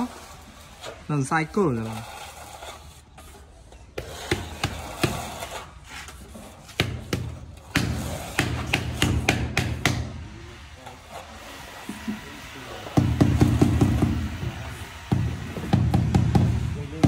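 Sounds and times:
tools knocking and scraping on tile: 3.4s - 10.1s, 12.9s - 16.6s.

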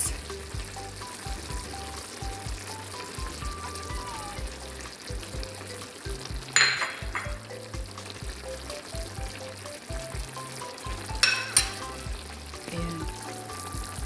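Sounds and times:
background music with beat: 0.0s - 14.0s
stew simmering: 0.0s - 14.0s.

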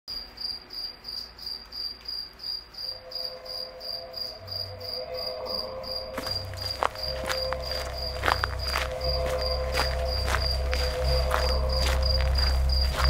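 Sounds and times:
cricket chirping: 0.1s - 13.0s
faint steady tone: 2.6s - 13.0s
low hum: 2.9s - 13.0s.

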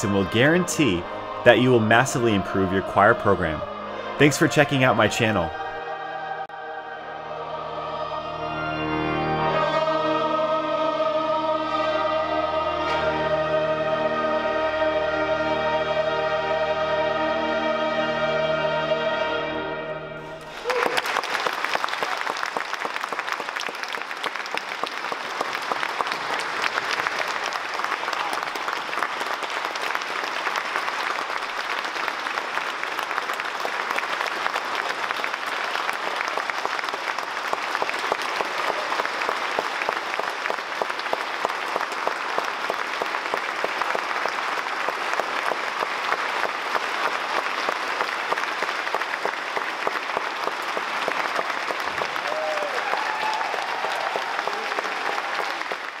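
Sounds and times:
congregation applauding: 0.0s - 5.9s, 20.2s - 56.0s.

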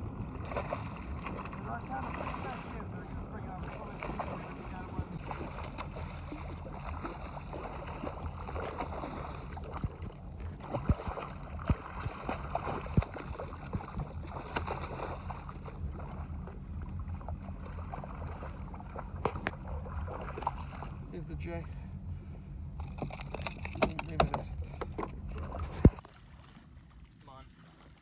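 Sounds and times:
steady low rumble: 0.0s - 26.0s
fish splashing in water: 0.3s - 21.0s.

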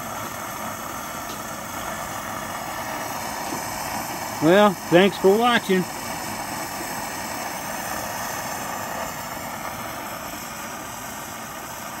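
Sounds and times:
stove burner rushing: 0.0s - 12.0s.

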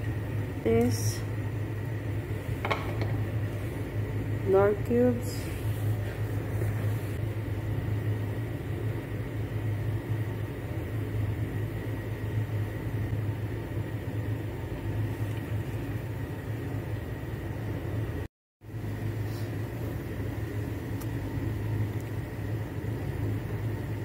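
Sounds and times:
kitchen machinery hum: 0.0s - 24.0s.

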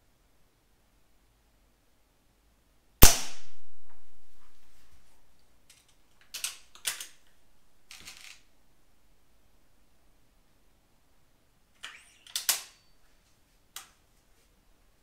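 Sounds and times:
air rifle shot crack: 3.0s - 4.8s
rifle handling clicks and rattle: 5.6s - 8.5s, 11.8s - 12.8s.

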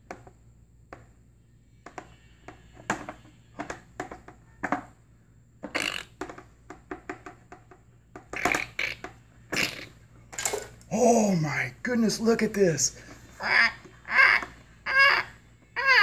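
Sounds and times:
taps and knocks inside hollow egg: 5.6s - 9.2s.

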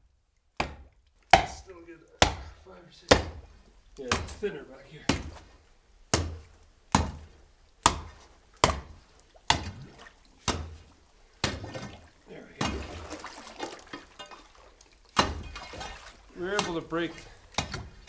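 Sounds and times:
ice being chopped: 0.6s - 1.6s, 15.2s - 15.6s, 16.4s - 16.9s
water splashing: 1.2s - 18.0s.

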